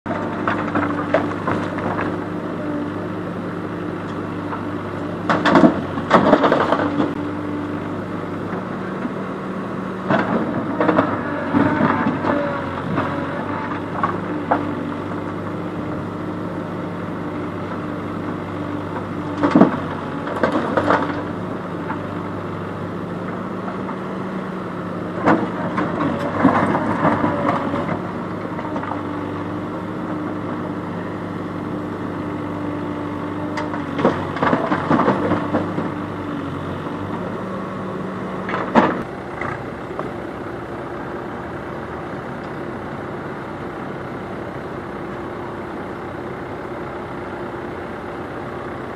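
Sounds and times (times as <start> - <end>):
diesel engine running: 0.0 - 48.9
rocks and gravel clattering: 5.2 - 7.2, 33.6 - 36.0.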